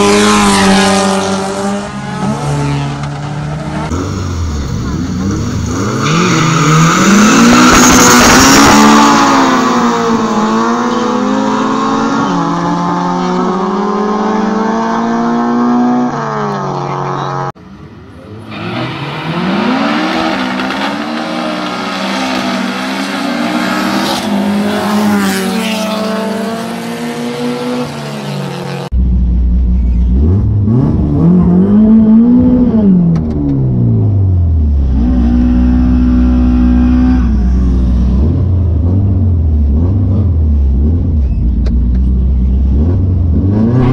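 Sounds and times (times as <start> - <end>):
cars accelerating hard: 0.0 - 29.0, 42.6 - 43.9.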